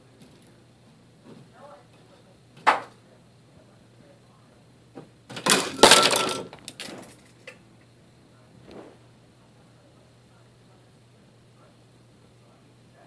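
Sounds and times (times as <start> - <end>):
pens and scissors clattering: 5.3 - 7.6.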